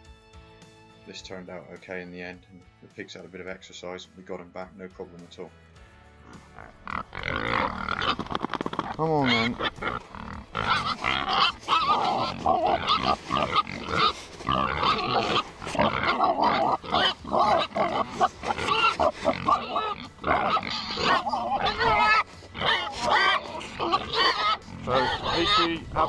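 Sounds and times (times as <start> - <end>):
pigs grunting: 6.2 - 26.0.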